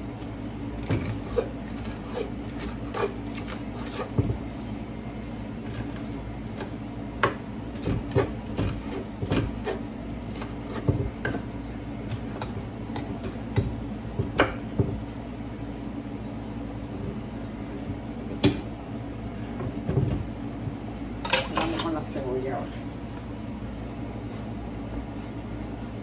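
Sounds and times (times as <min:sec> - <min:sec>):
steady low hum: 0:00.0 - 0:26.0
knife chopping on wooden board: 0:00.8 - 0:04.4, 0:06.5 - 0:11.4, 0:12.1 - 0:15.0.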